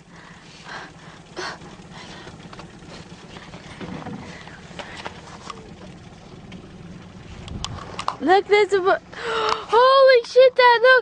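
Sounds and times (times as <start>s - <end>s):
water lapping against boat: 0.0s - 11.0s
light splashes and knocks: 2.1s - 8.4s.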